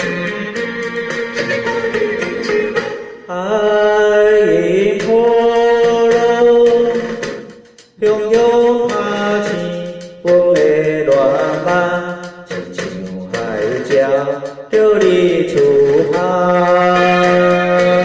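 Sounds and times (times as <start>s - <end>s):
karaoke backing track: 0.0s - 18.0s
man singing a ballad: 1.4s - 7.2s, 7.9s - 18.0s.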